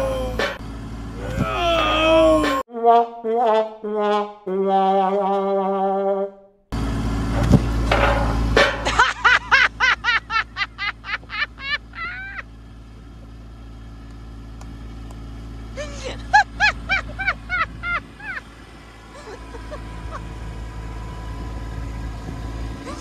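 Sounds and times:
tractor diesel engine running: 0.0s - 2.5s, 6.7s - 23.0s
high-pitched laughter: 8.9s - 12.5s, 15.8s - 18.5s, 19.1s - 20.2s.

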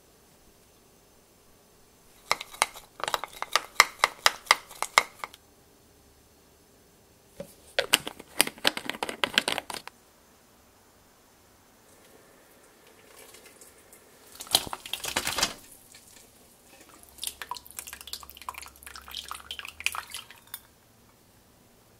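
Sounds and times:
teaspoon clinking against glass bowl: 19.9s - 20.7s.

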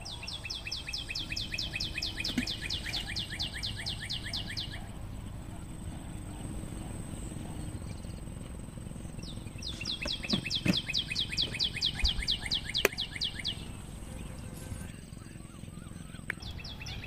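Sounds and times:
bird singing descending notes: 0.0s - 17.0s
sharp clicks: 9.6s - 13.2s.

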